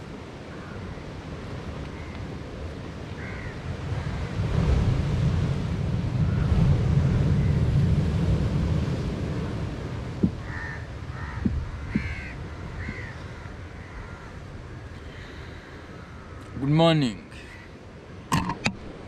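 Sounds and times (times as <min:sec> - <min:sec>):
crows cawing: 0:00.5 - 0:01.0, 0:01.9 - 0:02.2, 0:03.2 - 0:04.3, 0:10.3 - 0:16.6, 0:17.4 - 0:17.8.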